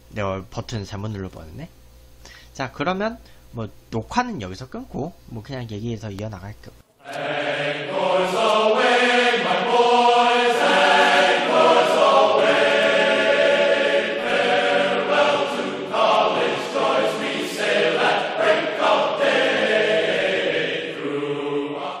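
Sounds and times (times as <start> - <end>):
choir singing held chords: 7.0 - 22.0.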